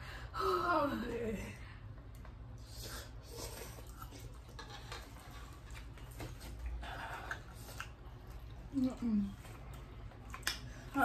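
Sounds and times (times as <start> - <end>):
low steady hum: 0.0 - 11.0
chewing: 2.2 - 11.0.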